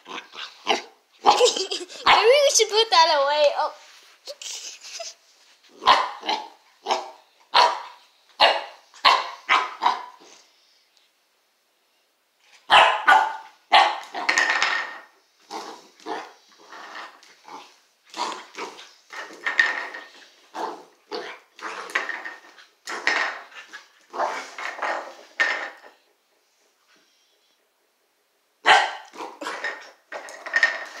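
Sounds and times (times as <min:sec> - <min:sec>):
dog barking: 0:05.8 - 0:10.2, 0:12.7 - 0:14.3, 0:28.6 - 0:29.6.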